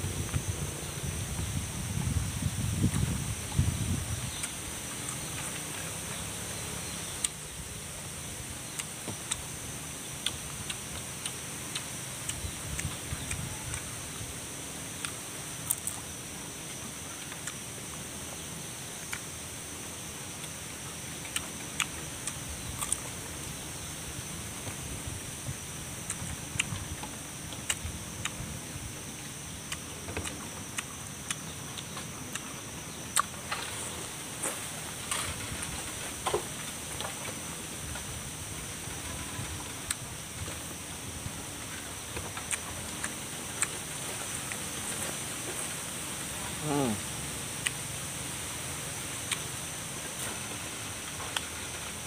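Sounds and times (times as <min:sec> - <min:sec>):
chewing crunchy raw vegetables: 0:08.6 - 0:14.1, 0:14.7 - 0:23.6, 0:25.3 - 0:38.1, 0:38.9 - 0:47.8, 0:49.2 - 0:52.0.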